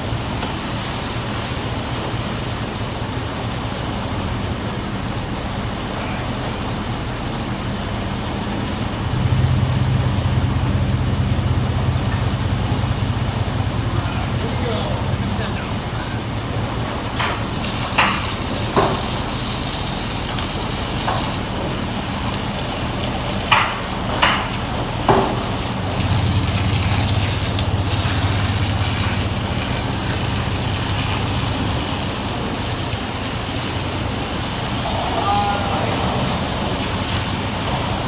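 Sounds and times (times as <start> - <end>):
pressure washer spraying hiss: 17.1 - 38.0.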